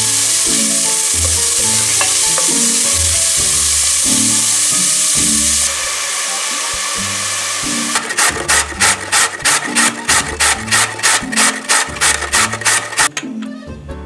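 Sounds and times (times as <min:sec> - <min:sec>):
onions sizzling in oil: 0:00.0 - 0:13.1
carrot grating on metal grater: 0:07.7 - 0:13.1.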